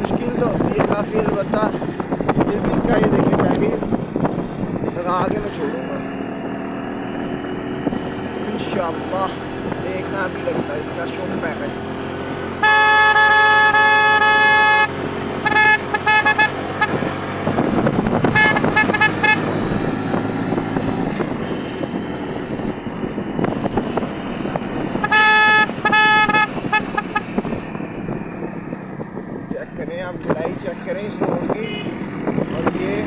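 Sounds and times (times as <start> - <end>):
motorcycle engine: 0.0 - 33.0
road noise: 0.0 - 33.0
wind: 0.0 - 33.0
motorcycle horn honking: 12.6 - 17.1, 18.3 - 19.6, 25.0 - 27.3, 31.6 - 31.9.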